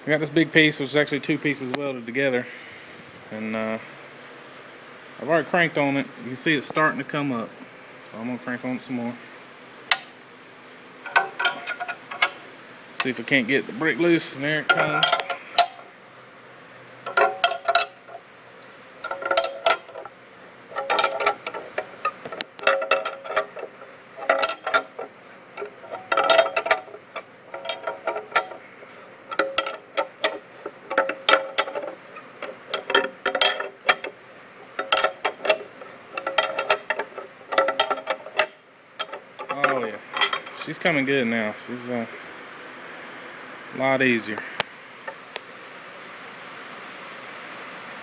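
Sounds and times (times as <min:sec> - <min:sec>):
ratchet wrench clicking: 0:20.7 - 0:28.7.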